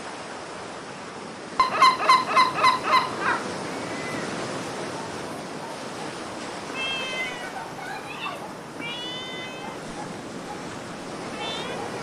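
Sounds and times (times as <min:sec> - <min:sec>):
gull yelping call: 0:01.6 - 0:04.4.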